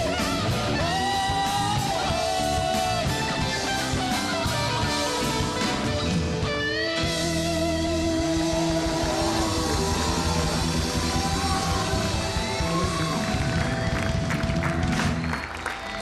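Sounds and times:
person singing: 0:00.0 - 0:06.1, 0:07.5 - 0:13.7
live band with guitar: 0:00.0 - 0:16.0.

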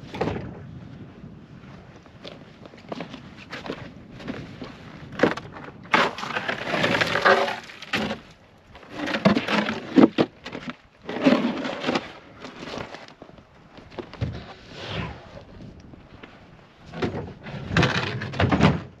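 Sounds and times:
wooden panel scraping on ice: 0:05.2 - 0:13.1, 0:17.0 - 0:19.0.

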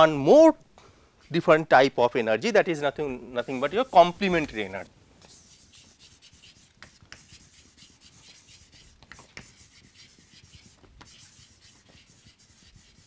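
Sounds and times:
chalk scratching on chalkboard: 0:03.3 - 0:13.0
chalk ticks on board: 0:05.2 - 0:13.0.

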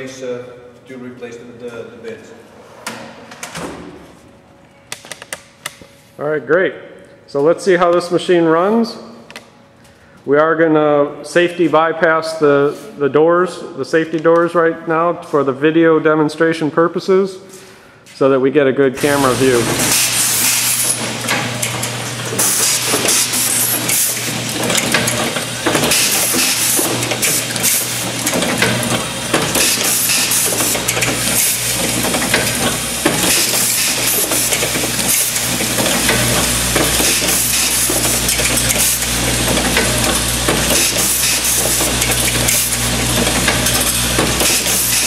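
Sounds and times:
machine low hum: 0:05.5 - 0:45.0
parts clicking and clattering: 0:19.8 - 0:45.0.

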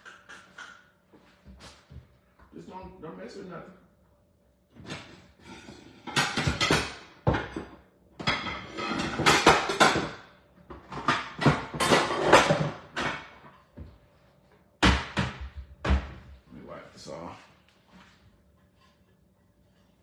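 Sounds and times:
dishes and utensils clattering: 0:04.8 - 0:13.6.

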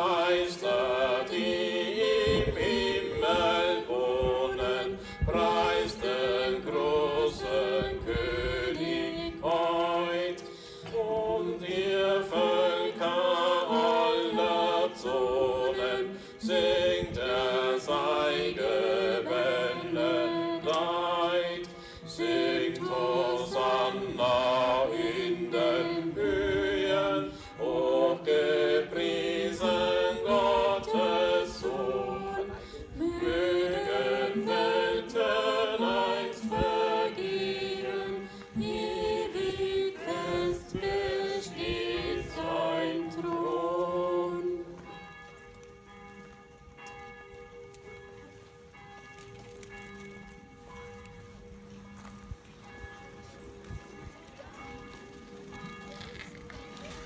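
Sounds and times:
group singing a hymn: 0:00.0 - 0:45.0.

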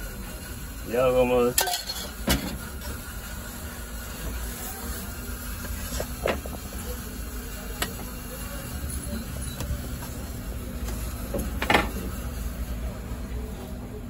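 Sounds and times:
oven hiss and rumble: 0:00.0 - 0:14.0.

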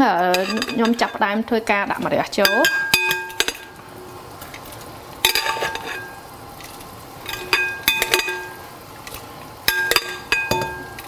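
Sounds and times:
tongs clinking against pot and bowl: 0:00.2 - 0:01.4, 0:02.3 - 0:03.7, 0:05.2 - 0:06.3, 0:07.2 - 0:11.0.

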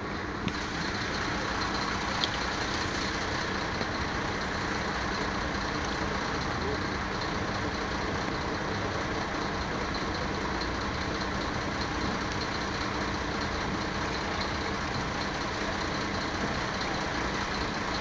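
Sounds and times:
engine idling: 0:00.0 - 0:18.0.

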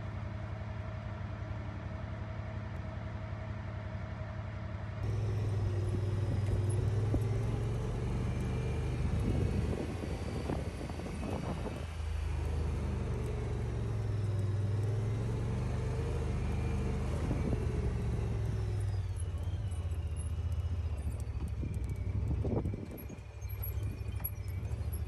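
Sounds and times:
utility vehicle engine running: 0:00.0 - 0:25.0.

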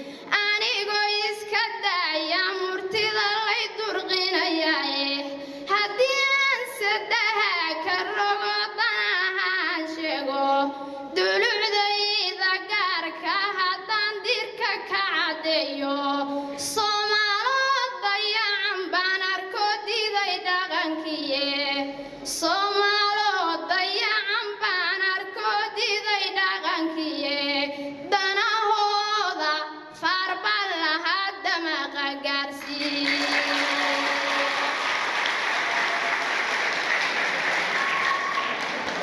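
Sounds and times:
audience applauding: 0:32.6 - 0:39.0.

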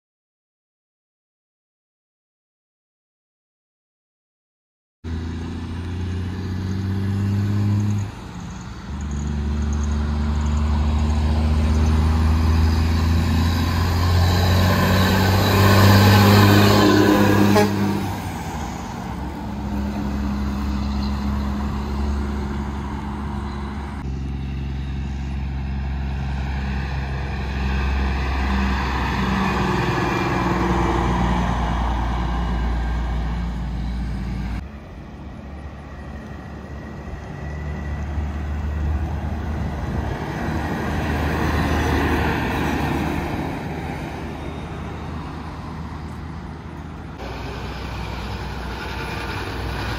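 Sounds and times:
diesel trucks driving past: 0:05.1 - 0:49.9.

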